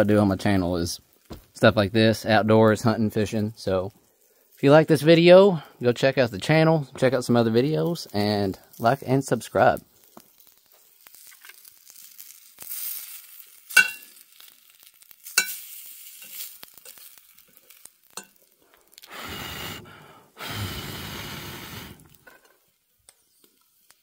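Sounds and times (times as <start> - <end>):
food sizzling in a skillet: 0.9 - 1.4, 3.6 - 5.3, 7.6 - 19.8, 20.6 - 24.0
fork clinking against pan: 13.8 - 14.0, 15.4 - 15.6.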